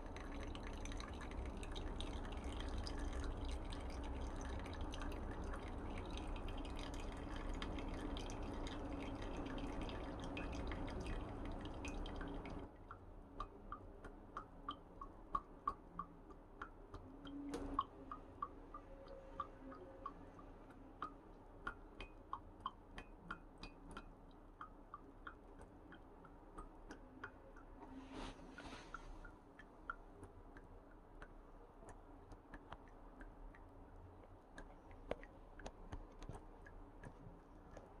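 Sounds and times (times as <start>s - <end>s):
coffee dripping into mug: 0.0s - 38.0s
soft hiss: 27.8s - 29.4s.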